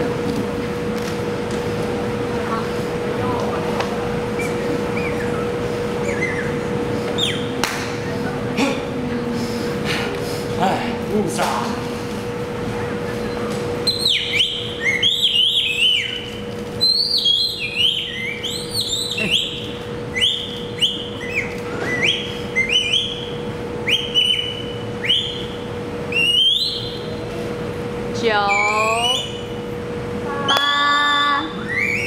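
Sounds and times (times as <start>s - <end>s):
steady hum: 0.0s - 32.0s
birdlike whistling: 4.4s - 7.6s, 12.8s - 27.2s, 28.4s - 29.6s, 30.7s - 32.0s.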